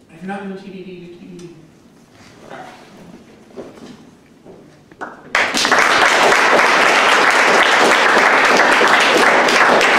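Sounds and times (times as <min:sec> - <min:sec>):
audience applauding: 0:05.3 - 0:09.9.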